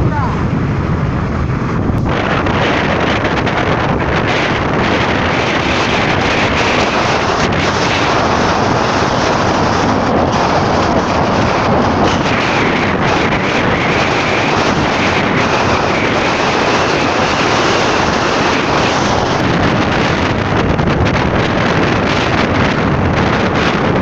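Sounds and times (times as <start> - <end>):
motorcycle engine running: 0.0 - 24.0
road noise: 0.0 - 24.0
wind buffeting microphone: 0.0 - 24.0.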